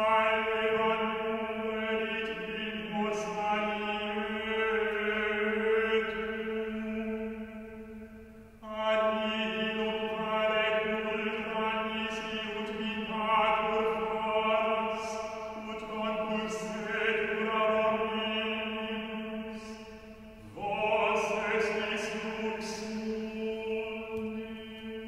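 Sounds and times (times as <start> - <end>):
voices chanting long tones: 8.6 - 25.0.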